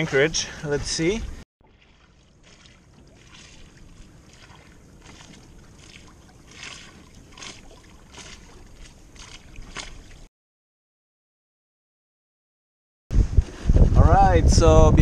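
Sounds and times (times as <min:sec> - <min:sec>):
water rushing along boat hull: 0:00.8 - 0:10.3
sharp water splashes: 0:01.6 - 0:10.3.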